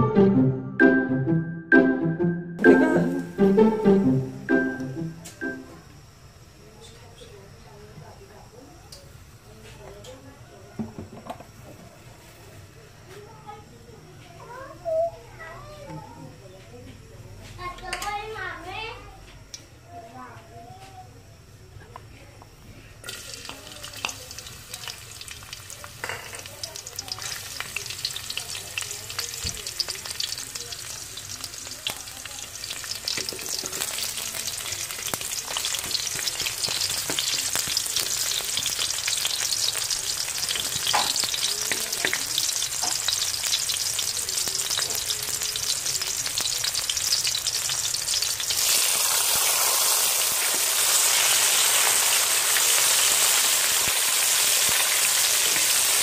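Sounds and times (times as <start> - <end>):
vegetables sizzling in hot oil: 23.0 - 56.0.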